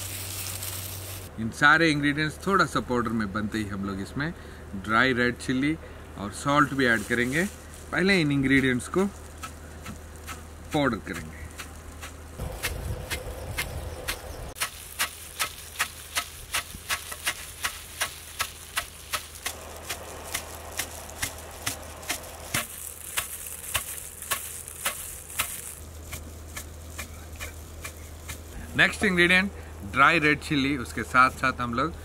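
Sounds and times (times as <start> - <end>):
pestle pounding spices in mortar: 11.1 - 28.5.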